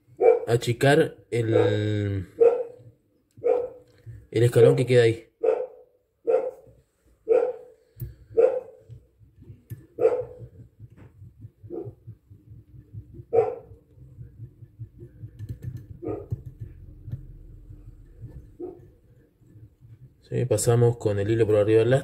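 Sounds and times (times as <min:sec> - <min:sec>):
dog barking: 0:00.2 - 0:00.5, 0:01.5 - 0:01.8, 0:02.4 - 0:02.8, 0:03.4 - 0:03.8, 0:05.4 - 0:08.8, 0:10.0 - 0:10.4, 0:13.3 - 0:13.7, 0:16.0 - 0:16.3.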